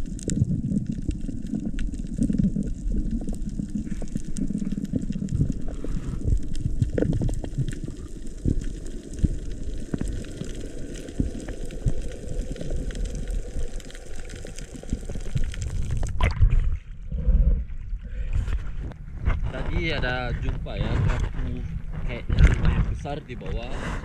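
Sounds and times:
small crackling clicks: 0.0 - 16.2
underwater rush of water: 0.0 - 17.6.

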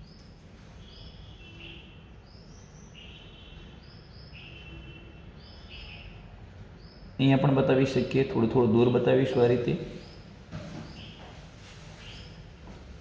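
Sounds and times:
faint bird chirps: 0.0 - 7.2, 9.8 - 12.5.

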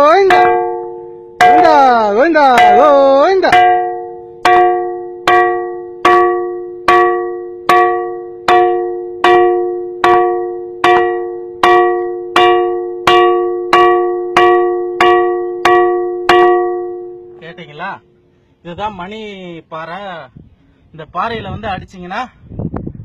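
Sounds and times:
stone striking ringing rock: 0.0 - 18.1.

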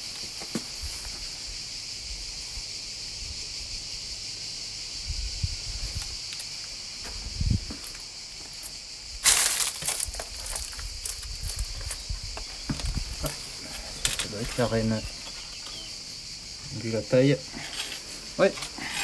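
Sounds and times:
insects chirping: 0.0 - 19.0
soft footsteps: 6.6 - 14.8
rustling crunch: 7.0 - 15.8
small crackles: 8.6 - 14.8.

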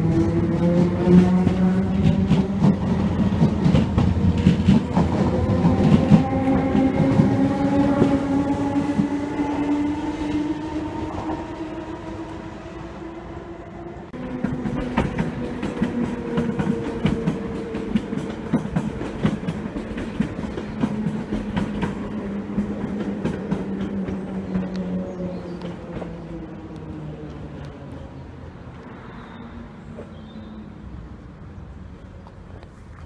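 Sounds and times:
train wheels clacking over rail joints: 0.0 - 9.2, 14.2 - 24.9.

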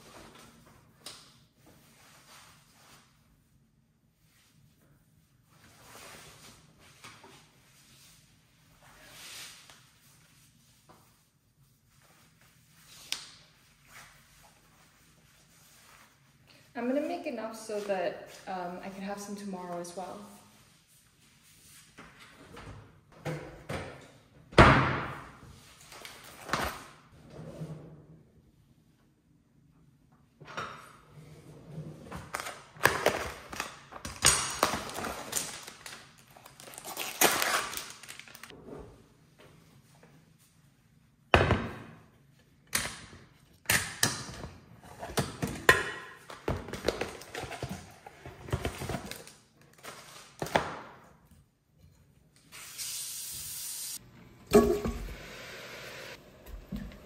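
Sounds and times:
pressure cooker hiss: 52.8 - 56.2
pressure cooker lid thunk: 54.5 - 55.1.

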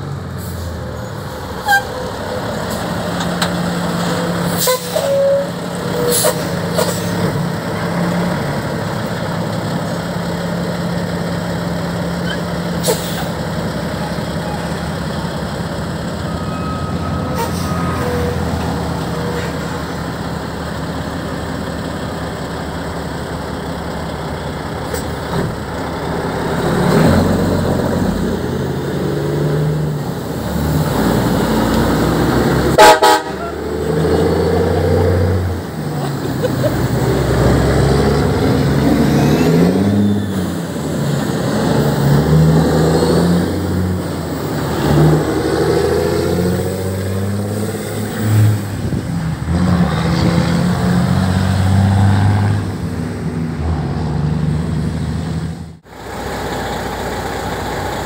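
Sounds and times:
diesel truck engine: 0.0 - 58.0
air horn blast: 32.7 - 33.8.

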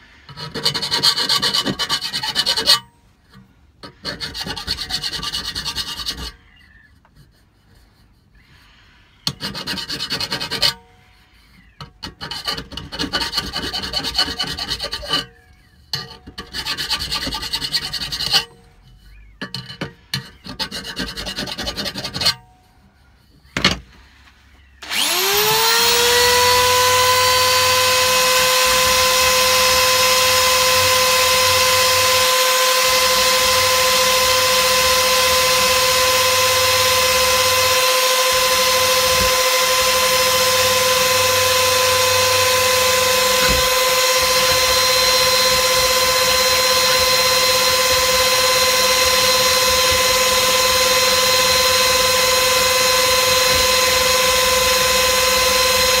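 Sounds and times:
hand file rasping on metal: 0.0 - 23.5, 24.9 - 56.0
power tool whine: 24.8 - 56.0.

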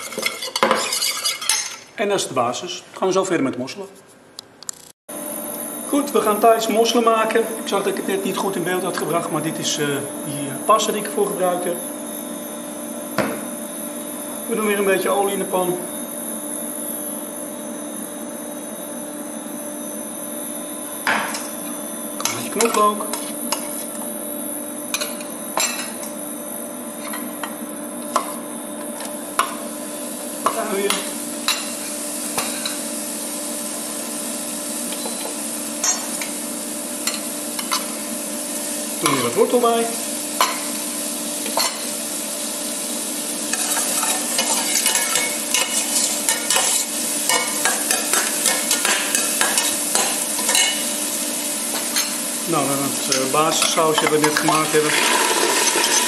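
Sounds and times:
metal spoon clinking on pot: 0.0 - 1.8, 43.5 - 50.8
vegetables sizzling in oil: 21.0 - 56.0.

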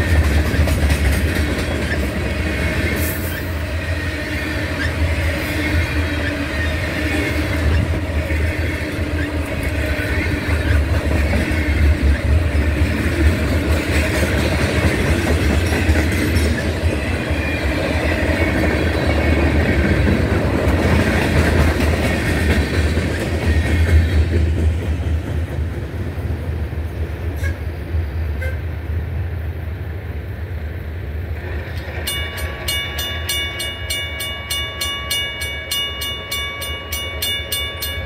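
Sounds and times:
train wheels rumbling on rail: 0.0 - 38.0
regular ringing bell: 32.1 - 38.0.

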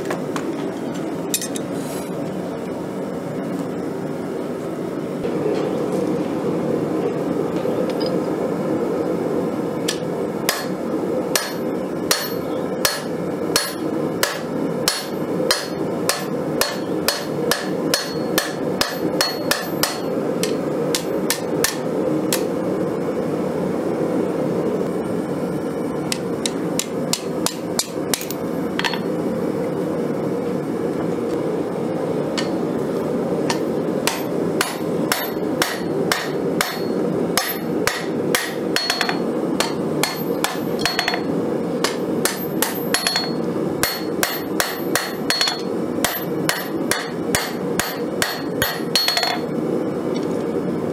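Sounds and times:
hammer ringing on anvil: 11.4 - 21.8, 33.5 - 49.5.

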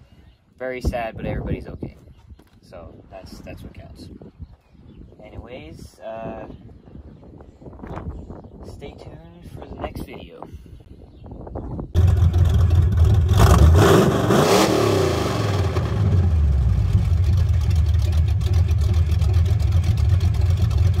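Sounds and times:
truck engine revving and idling: 12.0 - 21.0.

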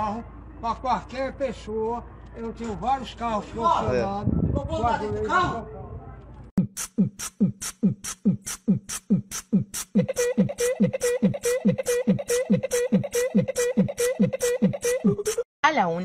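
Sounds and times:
hissing hi-hat hits: 6.7 - 10.0.

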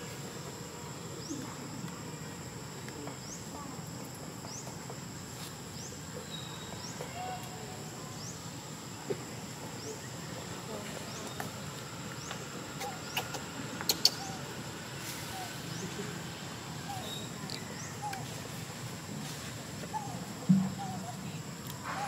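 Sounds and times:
high insect drone: 0.0 - 22.0
faint chirps: 5.4 - 18.7.

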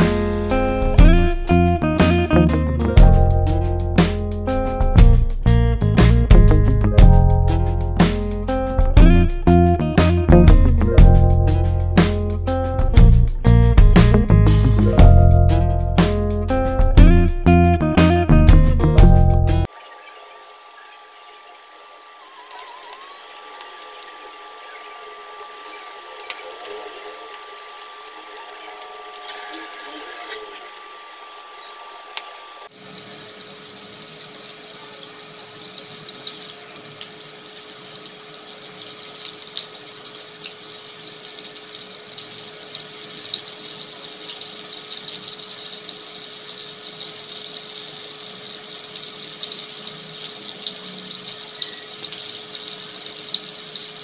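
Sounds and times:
chicken deep-frying in oil: 19.6 - 54.0.

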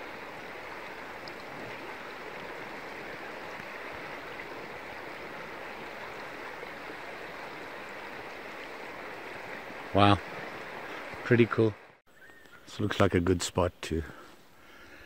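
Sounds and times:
river water flowing: 0.0 - 12.0.

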